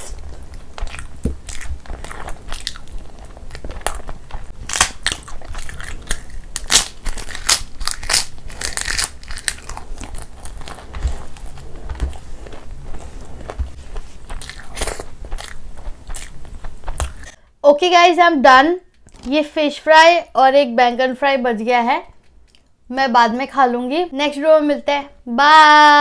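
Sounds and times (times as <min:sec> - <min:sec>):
crisp food crunching: 0:00.0 - 0:17.4
person chewing food: 0:00.0 - 0:17.4.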